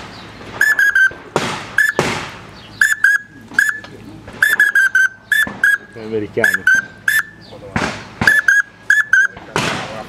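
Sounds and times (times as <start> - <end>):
duck whistle peeps: 0.6 - 1.2, 1.8 - 2.0, 2.8 - 7.4, 8.3 - 9.4.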